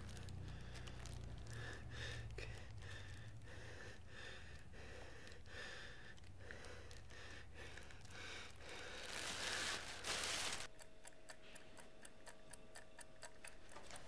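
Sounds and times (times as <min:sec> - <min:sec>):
faint steady hum: 0:00.0 - 0:14.0
clock ticking: 0:10.7 - 0:14.0.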